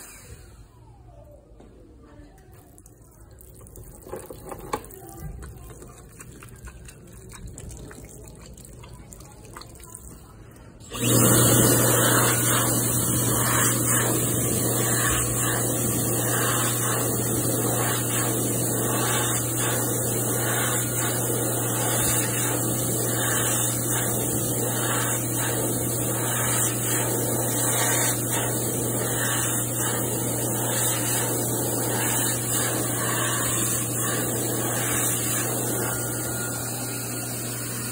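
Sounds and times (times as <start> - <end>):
hand dryer blowing air: 0.0 - 0.7, 10.8 - 37.9.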